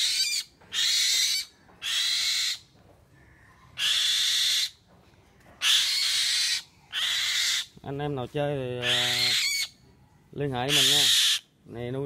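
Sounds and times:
bird screeching: 0:00.0 - 0:02.6, 0:03.8 - 0:04.8, 0:05.6 - 0:07.7, 0:08.8 - 0:09.8, 0:10.7 - 0:11.5.

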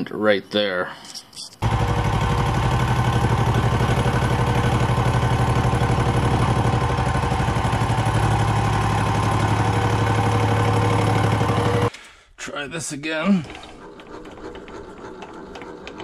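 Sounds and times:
milling machine humming: 0:01.6 - 0:11.9.

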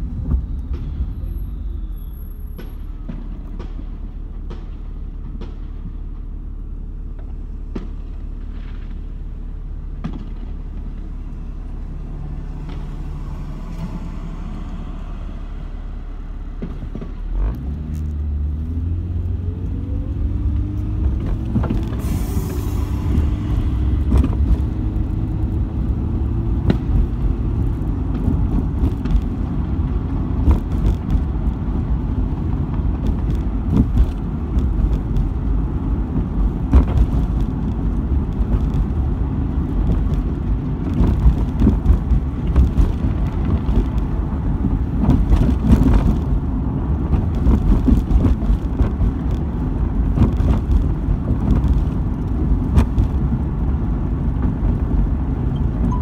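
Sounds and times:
road and engine rumble: 0:00.0 - 0:56.0.

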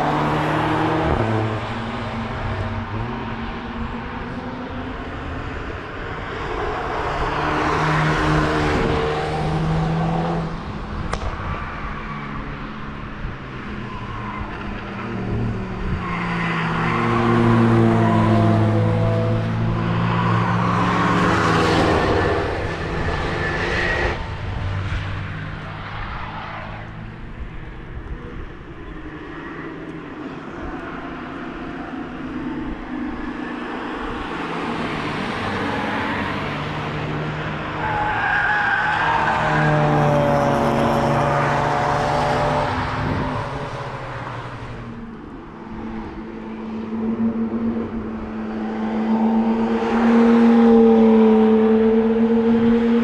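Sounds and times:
cars passing at speed: 0:00.0 - 0:53.0.

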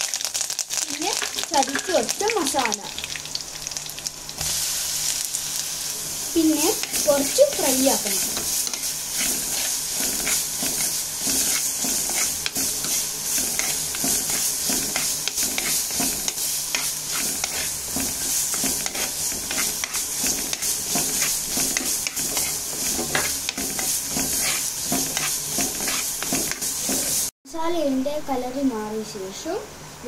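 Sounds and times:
masala sizzling in oil: 0:00.0 - 0:27.4
steel spoon scraping pot: 0:08.3 - 0:27.3.

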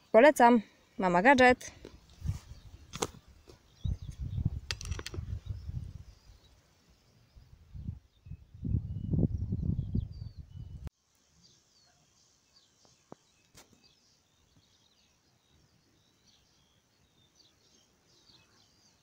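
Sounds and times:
birds chirping: 0:00.0 - 0:19.0
wind rumble on microphone: 0:02.1 - 0:03.2, 0:03.8 - 0:06.4, 0:07.3 - 0:10.9.

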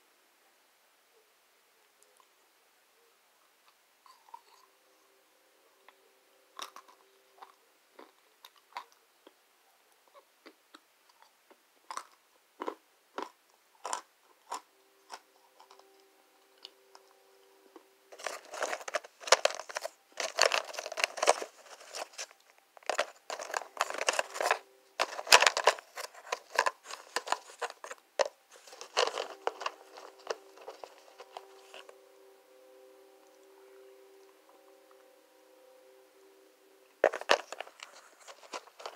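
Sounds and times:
crunchy food chewing: 0:04.1 - 0:04.7, 0:06.6 - 0:09.4, 0:10.4 - 0:15.9.

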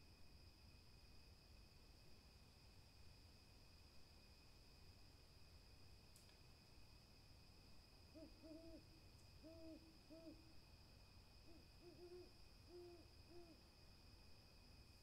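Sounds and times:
owl hooting: 0:08.1 - 0:10.5, 0:11.4 - 0:13.6.

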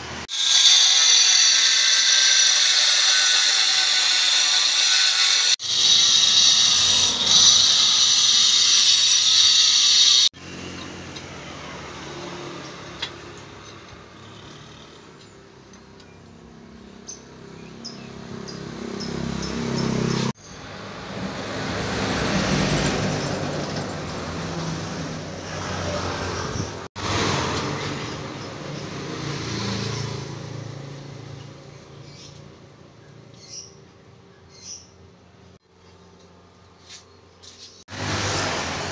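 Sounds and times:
angle grinder cutting tile: 0:00.2 - 0:10.4, 0:37.9 - 0:38.9
road vehicles passing: 0:10.4 - 0:38.9.

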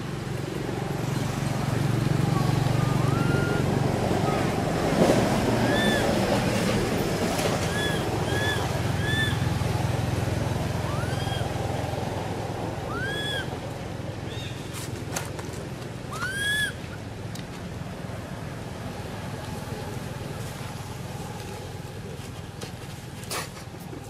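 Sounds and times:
baby monkey whimpering calls: 0:02.4 - 0:04.5, 0:05.6 - 0:06.2, 0:07.6 - 0:09.5, 0:10.8 - 0:11.5, 0:12.9 - 0:13.5, 0:16.1 - 0:16.9.

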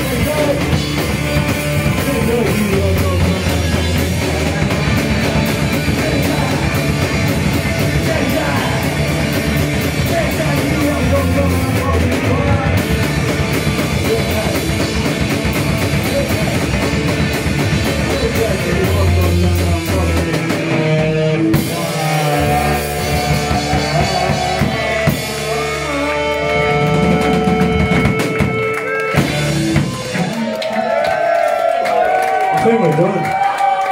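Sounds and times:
distorted electric guitar: 0:00.0 - 0:30.4
drum kit: 0:00.0 - 0:31.1
live punk band playing: 0:00.0 - 0:32.6
person singing: 0:01.8 - 0:16.9, 0:17.6 - 0:28.5.

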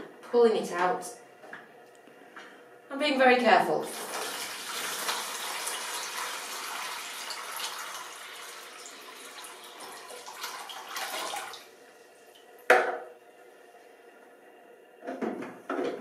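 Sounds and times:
water pouring into basin: 0:03.8 - 0:11.7
sharp knock: 0:12.7 - 0:13.0.

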